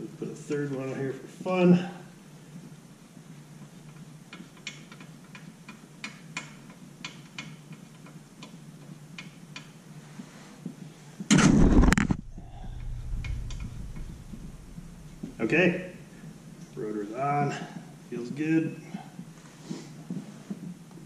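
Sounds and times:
lug nut metallic ticks: 3.9s - 8.6s
loud rustling thump: 11.3s - 15.6s.

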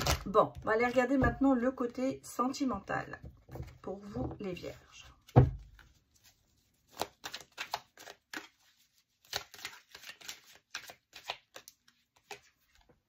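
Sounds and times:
cards being shuffled: 5.2s - 13.0s.

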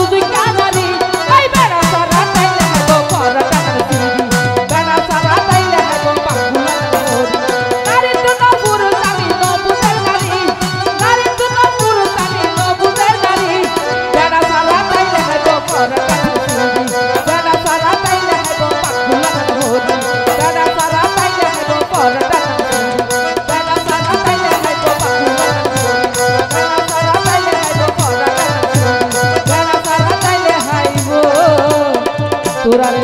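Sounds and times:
folk melody instruments: 0.0s - 33.0s
hand drum beat: 16.0s - 17.4s.

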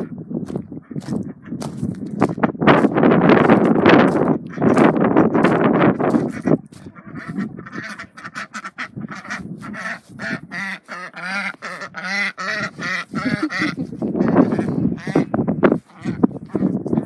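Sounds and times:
footsteps crunching on gravel: 0.0s - 7.5s
ducks quacking: 0.7s - 2.3s, 3.4s - 17.0s.

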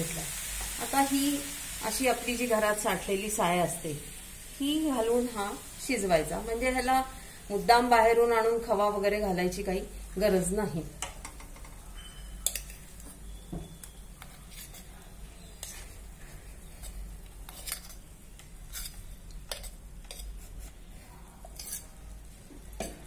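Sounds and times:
metal spoon scraping a bowl: 14.2s - 14.9s, 16.8s - 18.1s, 18.7s - 20.8s, 21.4s - 22.0s.

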